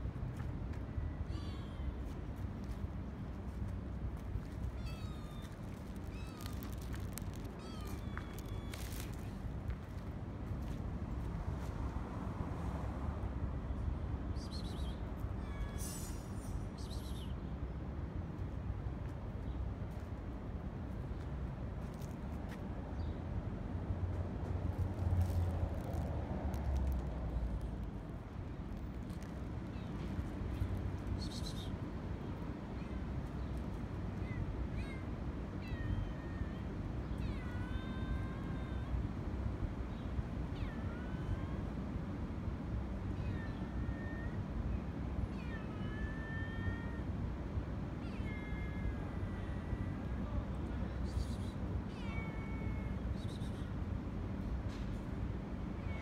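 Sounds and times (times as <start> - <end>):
low outdoor rumble: 0.0 - 56.0
cat meowing: 4.7 - 9.2, 34.2 - 38.9, 51.9 - 53.0.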